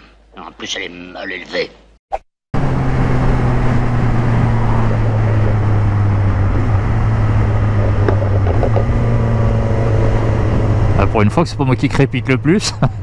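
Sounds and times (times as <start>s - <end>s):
motorcycle engine cruising: 2.6s - 13.0s
wind rush over helmet: 2.8s - 11.0s.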